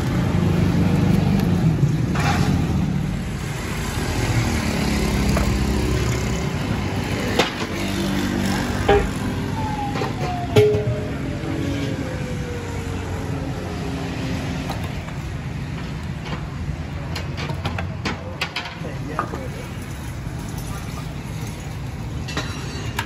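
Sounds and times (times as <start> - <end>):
traffic passing: 0.0 - 23.0
tone falling in pitch: 8.9 - 11.8.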